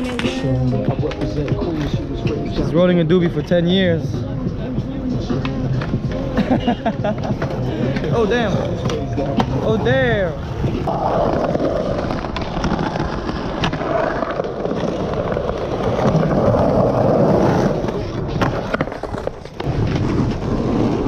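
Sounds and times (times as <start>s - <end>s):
skateboard clacking on ground: 0.0s - 2.7s, 4.7s - 6.4s, 7.1s - 21.0s
skateboard wheels rolling on stone: 0.0s - 21.0s.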